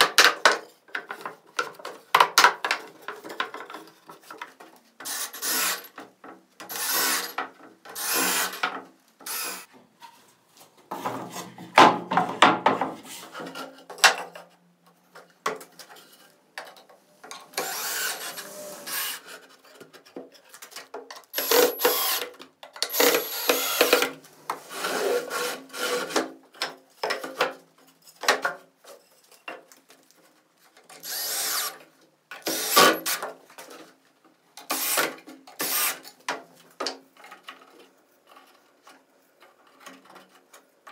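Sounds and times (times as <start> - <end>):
woodworking tool bursts: 21.4 - 24.1, 34.7 - 36.1.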